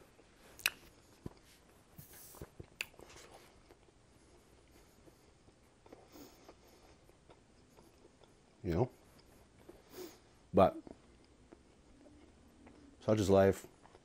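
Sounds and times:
person chewing: 0.5 - 1.5, 2.6 - 4.4, 5.0 - 9.8, 10.8 - 13.0, 13.7 - 14.0
mouth clicks: 0.6 - 0.9.

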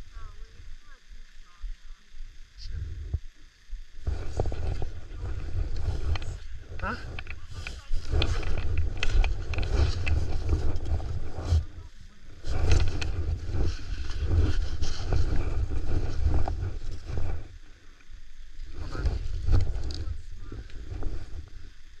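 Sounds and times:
wind buffeting microphone: 3.8 - 17.7
skis scraping over snow: 4.0 - 17.5, 18.7 - 21.4.

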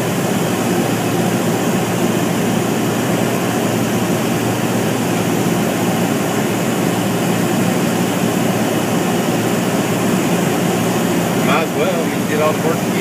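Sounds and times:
light airplane engine drone: 0.0 - 13.0.

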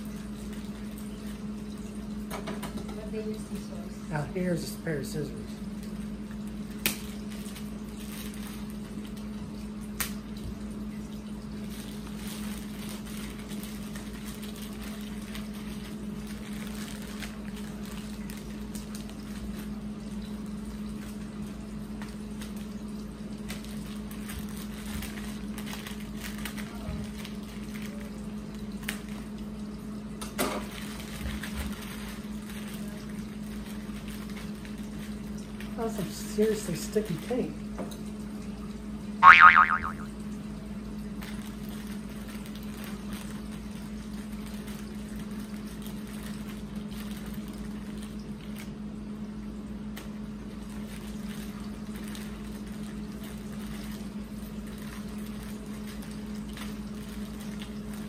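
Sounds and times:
plastic wrap crinkling: 5.8 - 9.4, 11.4 - 19.8, 22.1 - 29.2, 30.6 - 35.7, 41.2 - 48.7, 50.0 - 58.0.

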